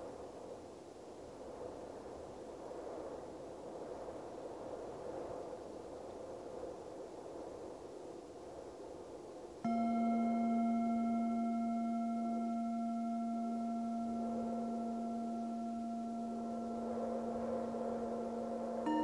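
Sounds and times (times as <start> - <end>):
wind: 0.0 - 19.0
singing bowl ringing: 9.6 - 19.0
higher singing bowl struck: 9.7 - 19.0.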